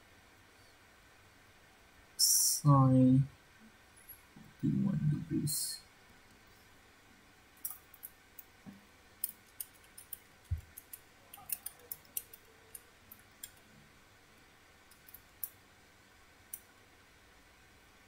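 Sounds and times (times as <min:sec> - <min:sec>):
keys clicking: 0:09.2 - 0:13.7, 0:14.9 - 0:15.5.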